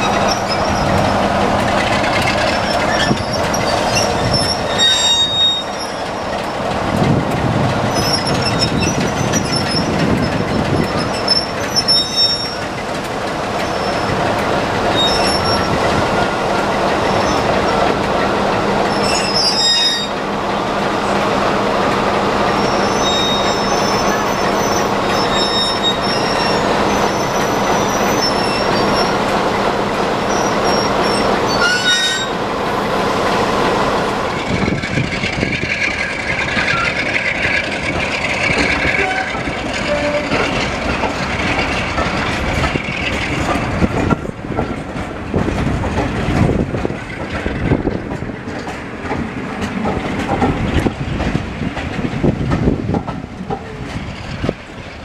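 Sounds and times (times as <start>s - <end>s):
diesel locomotive engine humming: 0.0s - 55.0s
high-pitched wheel squeals: 2.6s - 6.2s, 10.7s - 12.6s, 14.9s - 15.8s, 18.9s - 20.2s, 22.6s - 29.1s, 30.3s - 32.4s, 38.9s - 40.5s.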